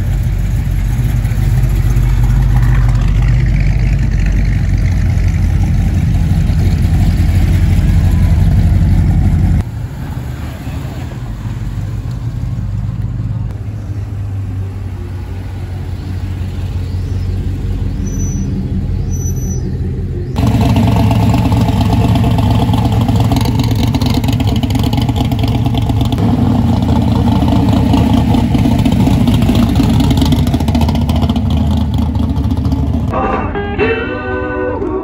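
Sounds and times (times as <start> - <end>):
car engine low exhaust rumble: 0.0 - 9.7, 16.1 - 33.1
loud rough car exhaust rumble: 0.0 - 10.0, 11.4 - 33.6.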